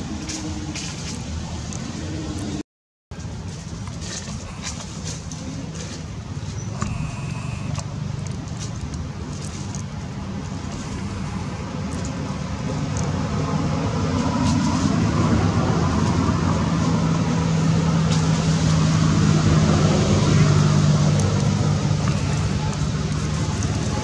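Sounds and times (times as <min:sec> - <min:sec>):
motor engine humming: 0:03.9 - 0:13.6, 0:19.1 - 0:24.0.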